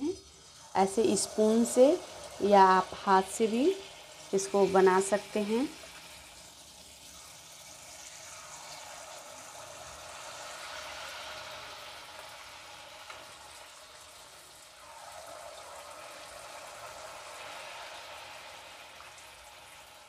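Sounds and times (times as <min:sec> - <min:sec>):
batter sizzling in hot oil: 0:00.0 - 0:20.0.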